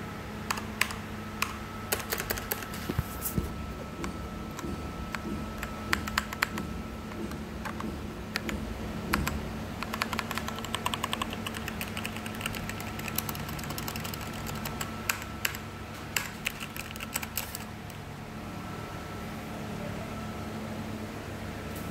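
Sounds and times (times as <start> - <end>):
faint steady hum: 0.0 - 21.9
mechanical keyboard typing: 0.5 - 2.9, 4.0 - 18.0.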